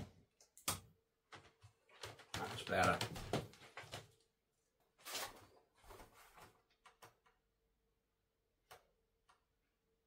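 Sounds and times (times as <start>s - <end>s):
footsteps knocking on wooden floor: 2.1s - 4.0s.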